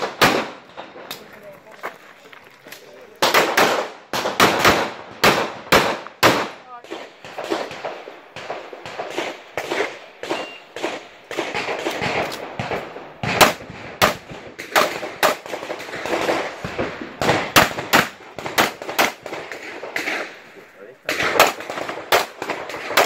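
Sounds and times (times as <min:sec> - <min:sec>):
pistol shots: 0:00.0 - 0:01.2, 0:03.2 - 0:20.5, 0:21.1 - 0:23.0
high shot-timer beep: 0:10.2 - 0:10.8.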